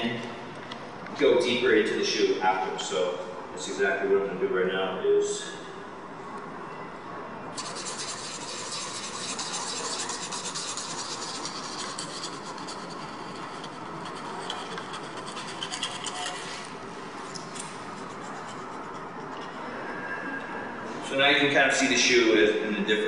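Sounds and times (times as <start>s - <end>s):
sandpaper rasping on shoe: 7.6s - 16.7s, 17.8s - 19.0s.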